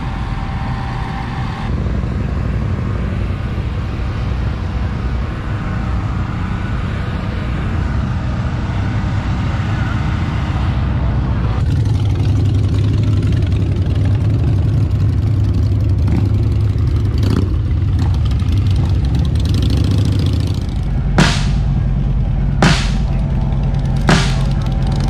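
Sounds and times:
motorcycle engines rumbling: 0:00.0 - 0:25.0
sharp musical hits: 0:20.6 - 0:25.0
music track: 0:20.8 - 0:25.0.

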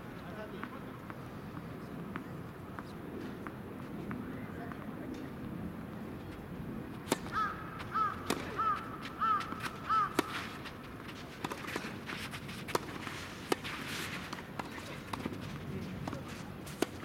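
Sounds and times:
racket striking tennis ball: 0:07.0 - 0:17.0
tennis ball bouncing: 0:07.0 - 0:17.0
crow cawing: 0:07.3 - 0:10.3.

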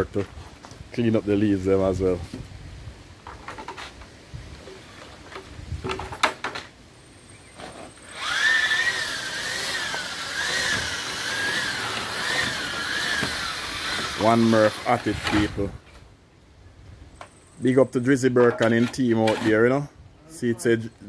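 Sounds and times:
knocks and scrapes: 0:03.2 - 0:06.7, 0:18.4 - 0:19.7
electric drill mixing concrete: 0:08.0 - 0:15.7.

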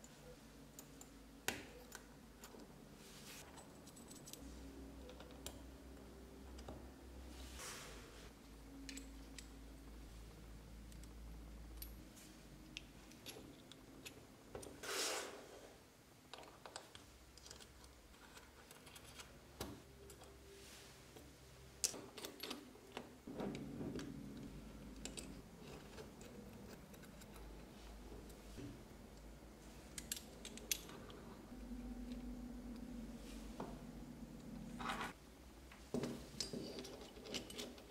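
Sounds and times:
small metal parts clinking: 0:03.4 - 0:05.5, 0:36.3 - 0:37.9.

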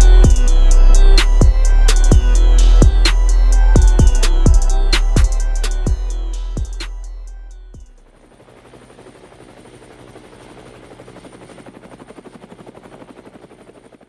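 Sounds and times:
bass note: 0:00.0 - 0:07.8
helicopter rotor chopping: 0:00.0 - 0:14.0.

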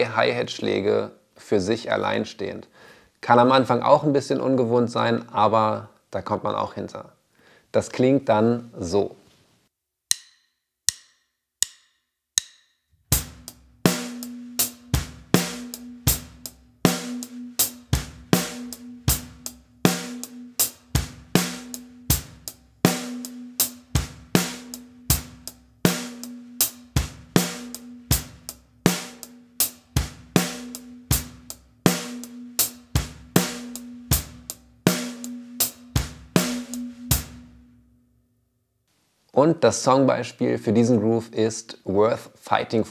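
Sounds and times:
hi-hat eighth notes: 0:13.3 - 0:37.7
bass drum kicks: 0:20.8 - 0:22.5, 0:29.9 - 0:37.6.

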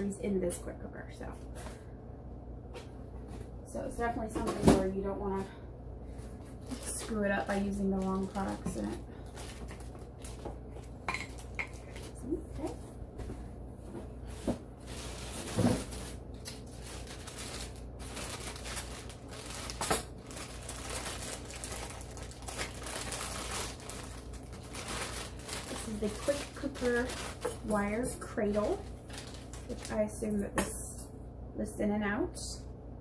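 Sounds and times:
low steady hum: 0:00.0 - 0:33.0.

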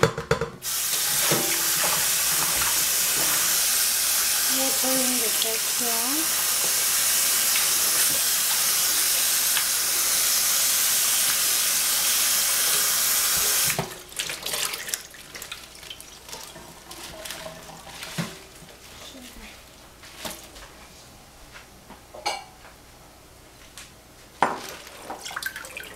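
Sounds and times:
tap water running into sink: 0:00.6 - 0:18.5, 0:24.5 - 0:25.9
wet leaves clicking and rustling: 0:14.2 - 0:20.6.

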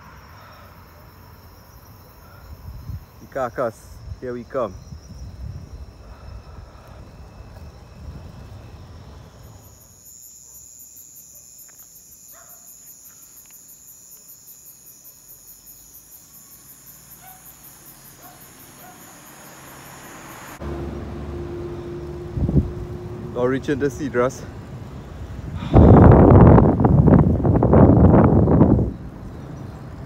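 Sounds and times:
road noise: 0:00.0 - 0:10.0, 0:15.1 - 0:30.0
insects trilling: 0:00.0 - 0:20.8, 0:21.4 - 0:30.0
wind noise: 0:02.2 - 0:09.8, 0:22.2 - 0:23.2, 0:24.6 - 0:30.0.

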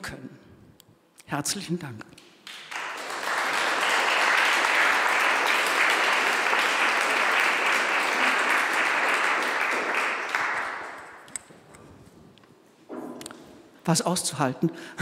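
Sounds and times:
audience applauding: 0:02.2 - 0:11.3.

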